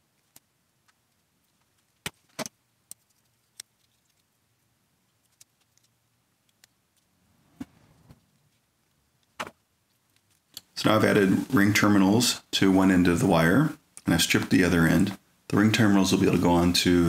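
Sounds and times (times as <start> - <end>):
small ticks: 2.9 - 4.3, 5.1 - 7.1.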